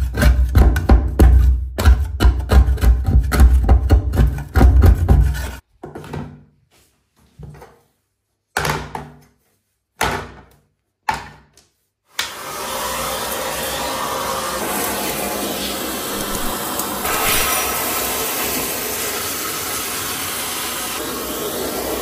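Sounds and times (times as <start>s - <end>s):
vacuum cleaner running: 12.2s - 22.0s.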